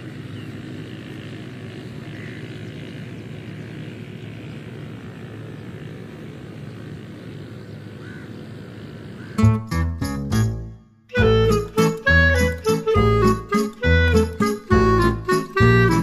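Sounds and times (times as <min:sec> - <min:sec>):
loud music: 0:11.2 - 0:16.0.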